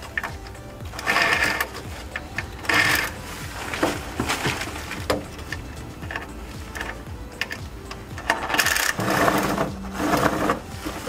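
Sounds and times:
ratchet clicking rapidly: 0.9s - 3.2s, 6.0s - 10.6s.

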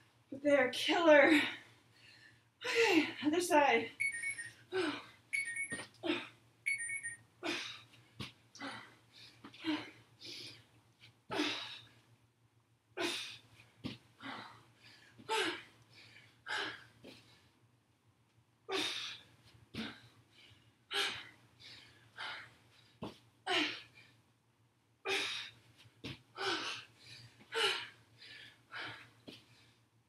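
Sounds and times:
woman breathing hard: 4.6s - 5.2s, 7.4s - 8.0s, 8.6s - 10.7s, 11.3s - 12.0s, 13.0s - 17.6s, 18.7s - 24.2s, 25.0s - 25.6s, 26.3s - 29.9s
feet landing: 26.0s - 26.2s.

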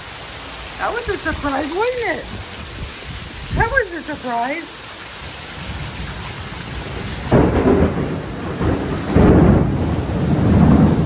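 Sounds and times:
heavy rain pouring: 0.0s - 11.0s
thunder crack and rumble: 5.5s - 11.0s.

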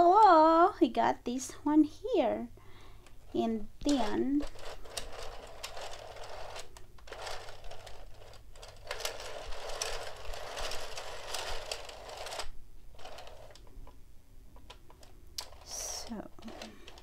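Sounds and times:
plastic machine parts clicking: 3.9s - 14.0s, 16.4s - 17.0s.

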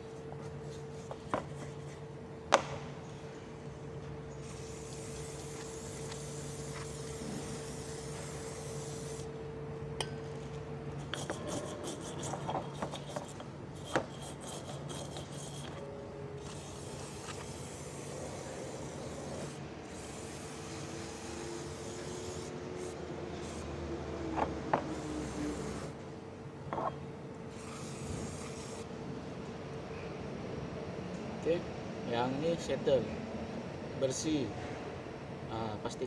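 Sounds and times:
steady low hum: 0.0s - 36.0s
aerosol spray hissing: 4.4s - 9.3s, 16.4s - 23.6s, 24.9s - 25.9s, 27.5s - 28.8s
rubbing and scrubbing metal part: 11.0s - 17.6s.

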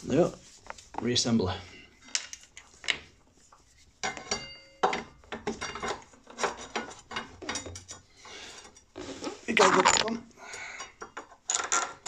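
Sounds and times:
metal clinks and knocks: 4.0s - 8.1s, 10.9s - 12.0s.

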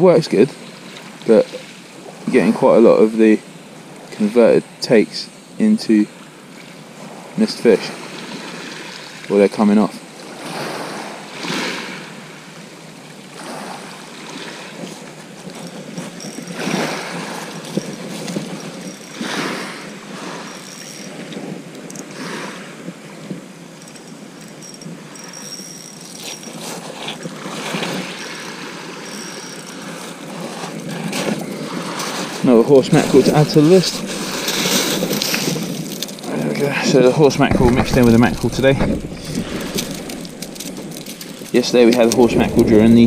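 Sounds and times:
waves washing on shingle beach: 5.9s - 43.0s.

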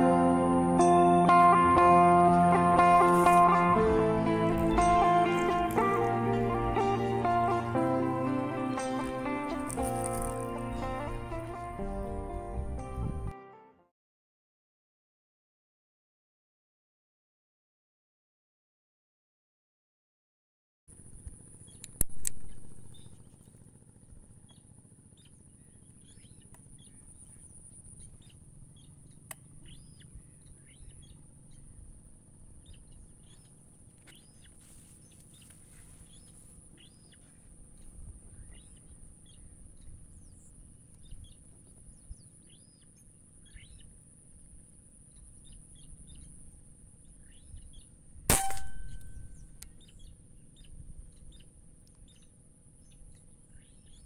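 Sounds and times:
small birds chirping: 0.0s - 12.8s, 21.3s - 54.0s
high-pitched whine: 0.0s - 13.3s, 22.1s - 23.4s, 48.3s - 49.7s
rifle shot with metallic ring: 48.3s - 49.6s.

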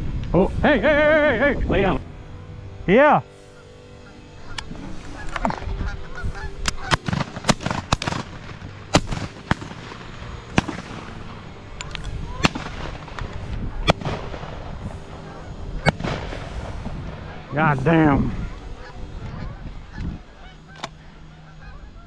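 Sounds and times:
geese honking: 0.5s - 22.0s
shotgun shots: 6.7s - 11.4s, 12.4s - 13.2s, 13.8s - 14.6s, 15.8s - 16.9s.

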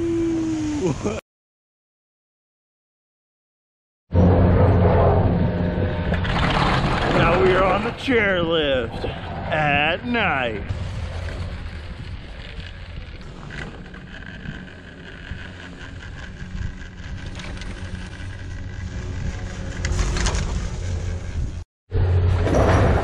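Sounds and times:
chairlift rumble: 0.0s - 1.2s, 4.2s - 21.6s
wind noise: 4.2s - 21.6s.

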